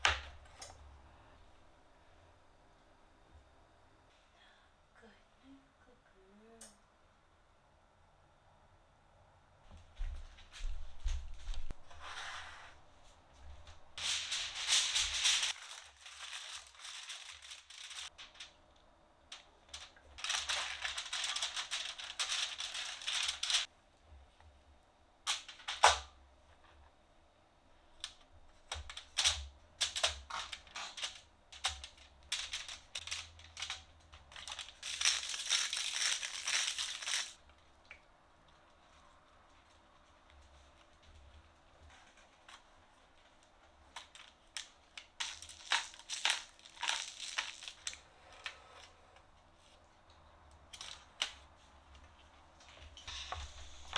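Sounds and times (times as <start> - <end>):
aluminium foil crinkling: 14.0 - 18.6, 19.3 - 23.7, 28.0 - 37.4, 39.6 - 48.0, 50.7 - 51.5.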